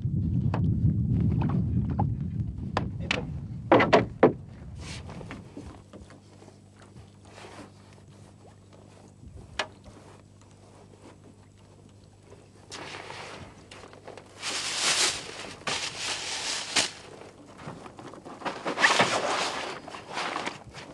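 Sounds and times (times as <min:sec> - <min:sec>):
faint low hum: 0:00.0 - 0:20.9
fish splashing in net: 0:14.3 - 0:17.2.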